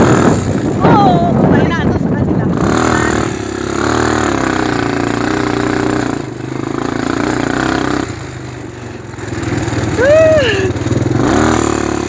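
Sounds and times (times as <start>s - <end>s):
wind noise: 0.0s - 5.5s
off-road vehicle engine running: 0.0s - 12.0s.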